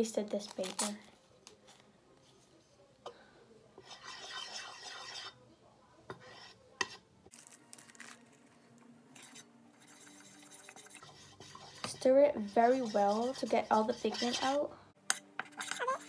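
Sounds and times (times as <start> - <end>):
stick scraping plastic bowl: 3.8 - 5.4, 9.2 - 16.0.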